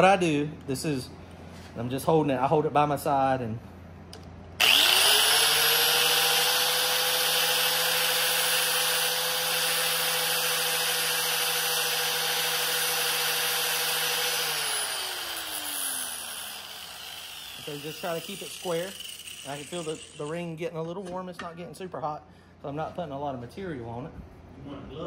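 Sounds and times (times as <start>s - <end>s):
angle grinder grinding metal: 4.6s - 20.5s.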